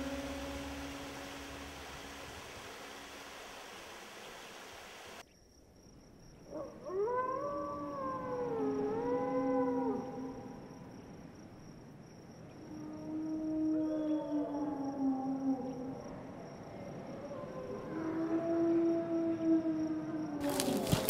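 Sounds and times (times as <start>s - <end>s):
wolf howling: 0.0s - 2.3s, 6.5s - 10.4s, 12.8s - 16.0s, 17.3s - 21.0s.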